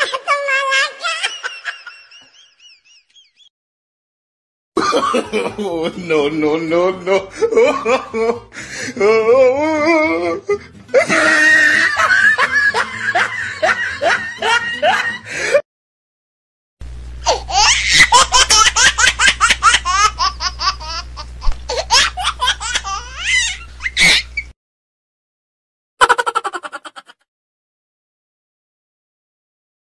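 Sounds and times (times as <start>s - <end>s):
loud laughter: 0.0s - 3.5s, 4.8s - 6.2s, 7.0s - 8.5s, 10.9s - 15.6s, 17.3s - 24.4s, 26.0s - 27.2s
low hum: 16.8s - 24.5s.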